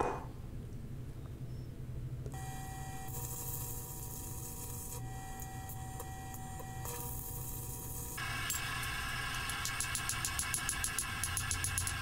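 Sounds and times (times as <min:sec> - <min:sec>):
gas torch flame hissing: 0:06.8 - 0:12.0.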